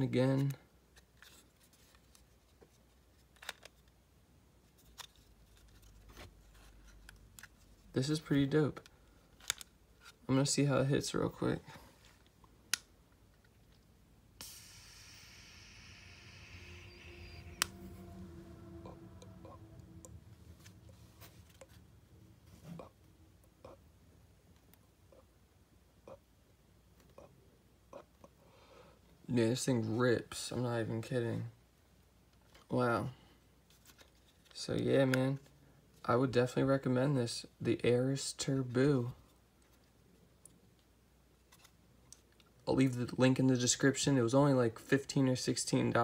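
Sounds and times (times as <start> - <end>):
faint low hum: 0.0 - 46.0
air hissing through vape: 14.4 - 20.1.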